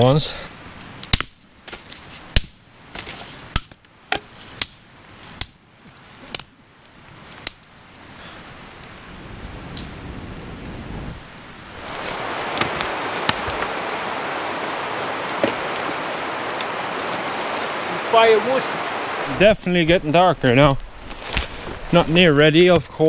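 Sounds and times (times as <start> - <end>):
twigs snapping: 11.3 - 17.9, 20.8 - 22.2
rushing noise: 11.5 - 22.2.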